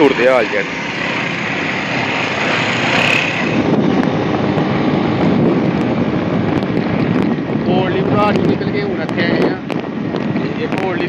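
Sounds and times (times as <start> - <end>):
small motorcycle engine running: 0.0 - 7.2
wind rushing over microphone: 0.0 - 11.0.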